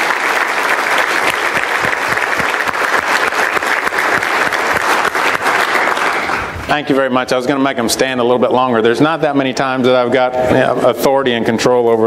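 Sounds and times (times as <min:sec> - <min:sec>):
crowd applauding: 0:00.0 - 0:07.0.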